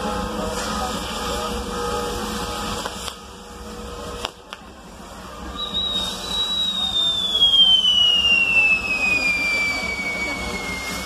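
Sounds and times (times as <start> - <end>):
firework whistle falling in pitch: 5.5 - 11.0.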